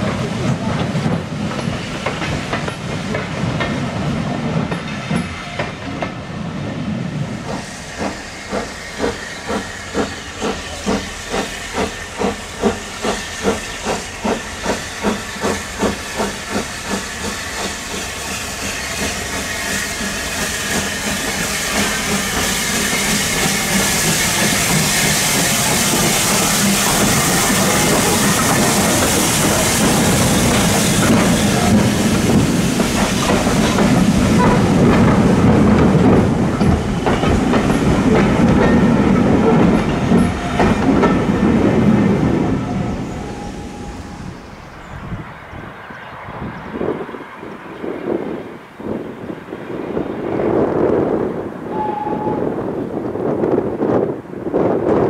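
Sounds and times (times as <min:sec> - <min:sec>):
steam hissing: 0:07.2 - 0:44.8
steam locomotive chuffing: 0:07.3 - 0:44.7.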